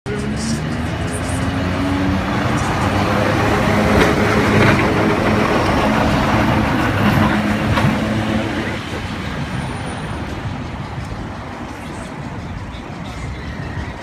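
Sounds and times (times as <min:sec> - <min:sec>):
electric tram rolling on rails: 0:00.1 - 0:14.0.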